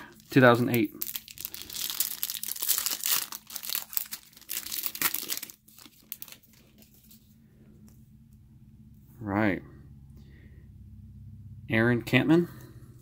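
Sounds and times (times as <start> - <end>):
foil wrapper tearing and crinkling: 0.1 - 7.0.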